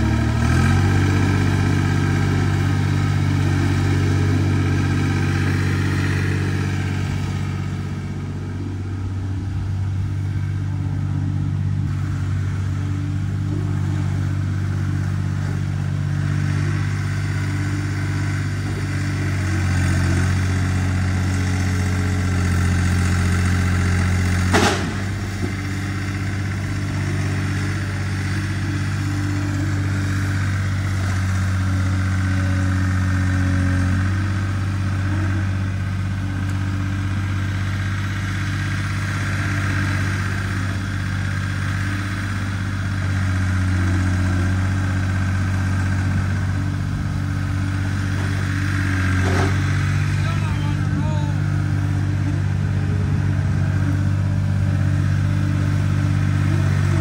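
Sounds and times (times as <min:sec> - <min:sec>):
vehicle engine running: 0:00.0 - 0:57.0
short sharp impact: 0:24.4 - 0:25.5.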